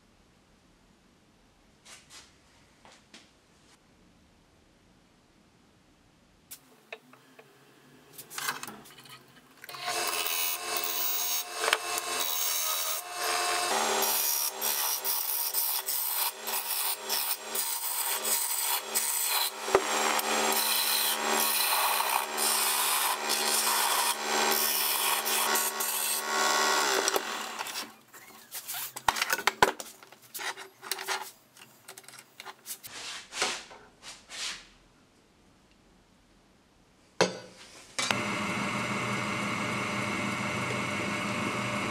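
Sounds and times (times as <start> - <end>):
lathe humming: 9.7 - 27.8, 38.1 - 41.9
gouge scraping wood on lathe: 9.8 - 28.0.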